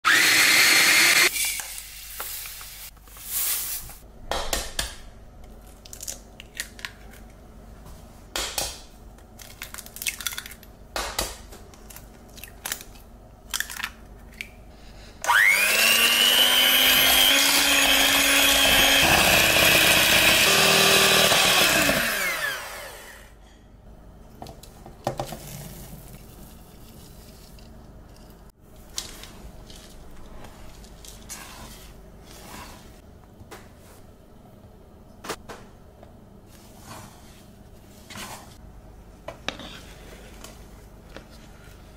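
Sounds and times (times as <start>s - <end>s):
electric mixer whining: 0.0s - 1.3s, 15.2s - 23.3s
electric food chopper: 0.1s - 1.3s, 15.3s - 23.3s
eggs cracking into bowl: 9.3s - 14.6s.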